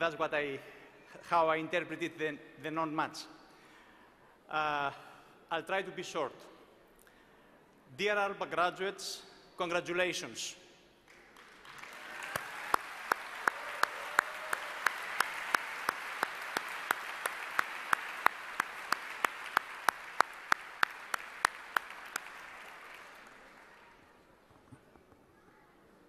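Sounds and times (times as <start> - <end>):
sharp claps near microphone: 11.0 - 24.0
audience applause: 11.1 - 24.3.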